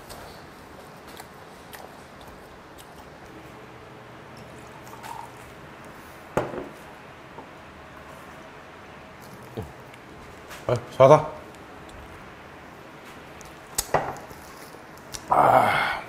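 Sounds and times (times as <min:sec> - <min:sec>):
liquid pouring into a glass: 0:04.4 - 0:05.5.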